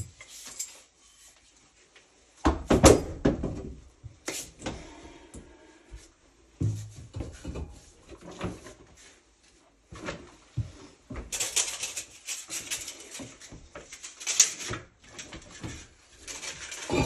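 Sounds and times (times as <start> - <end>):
rubbing and rustling: 6.7 - 17.0.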